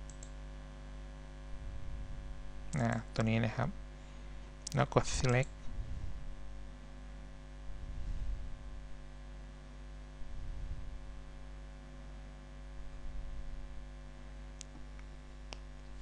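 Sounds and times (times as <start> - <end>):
electrical mains hum: 0.0 - 16.0
faint click: 0.1 - 0.3.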